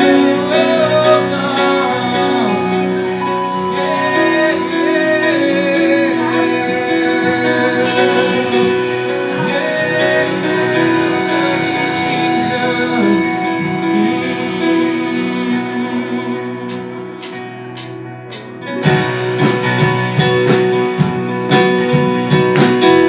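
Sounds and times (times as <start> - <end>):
people singing: 0.0 - 17.3
worship band with guitar: 0.0 - 23.0.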